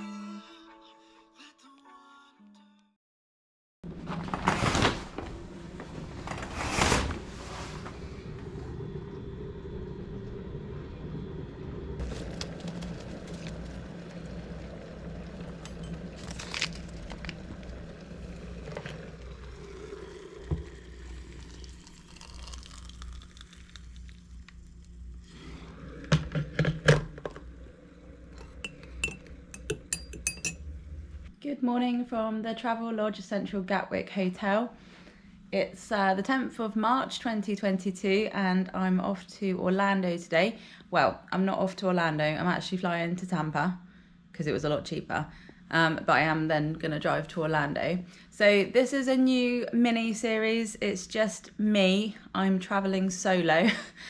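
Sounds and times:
electric kettle heating: 7.3s - 31.3s
water pouring into a mug: 12.0s - 30.6s
teaspoon clinking against mug: 28.4s - 30.6s.

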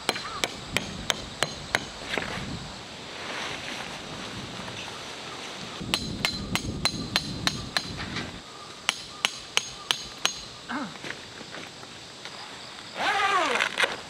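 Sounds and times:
hammer striking tent peg: 0.0s - 2.0s, 5.9s - 8.0s, 8.9s - 10.5s.

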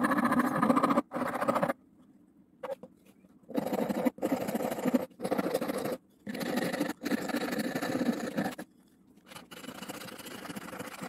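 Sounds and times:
file scraping wood: 3.5s - 8.7s.

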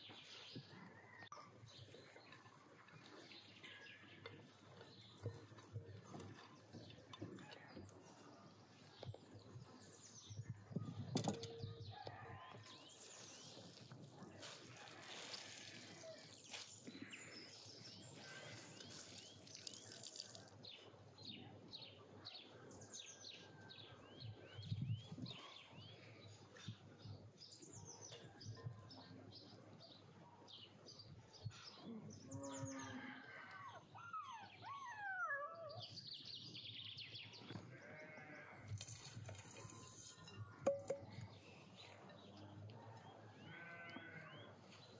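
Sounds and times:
birdsong with falling chirps: 0.0s - 44.9s
glass bowl knocking on table: 40.7s - 41.1s.

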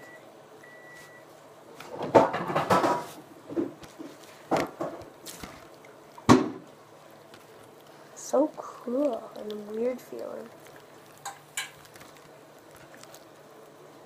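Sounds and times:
slime squelching: 3.8s - 14.0s.

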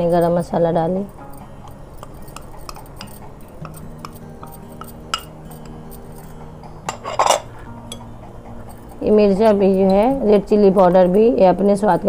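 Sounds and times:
metal spoon scraping ceramic bowl: 1.2s - 8.0s
ceramic bowls clattering: 2.0s - 8.1s.

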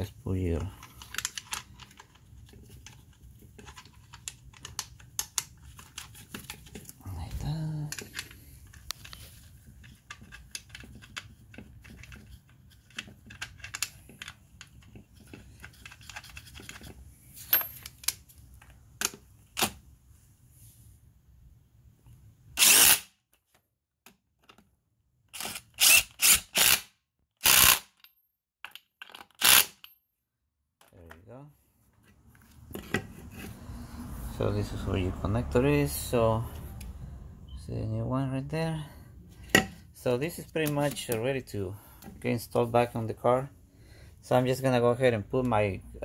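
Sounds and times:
metal parts clicking: 0.8s - 6.9s.

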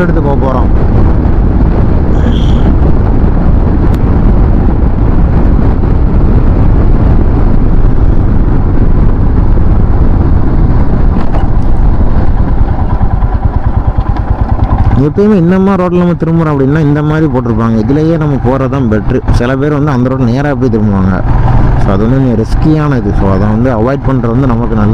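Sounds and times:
wind buffeting the microphone: 0.0s - 24.9s
motorcycle engine running: 0.3s - 24.9s.

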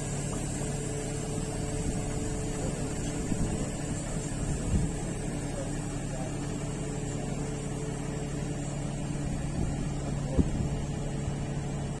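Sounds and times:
machine humming: 0.0s - 12.0s.

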